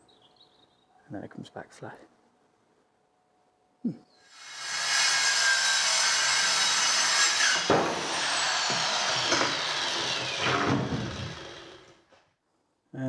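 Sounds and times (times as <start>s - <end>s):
circular saw cutting plywood: 4.3s - 12.0s.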